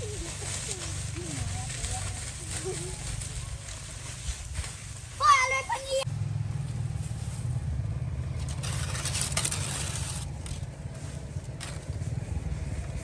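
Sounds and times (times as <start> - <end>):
dry corn stalks rustling: 0.0 - 13.0
steady low rumble: 6.0 - 13.0.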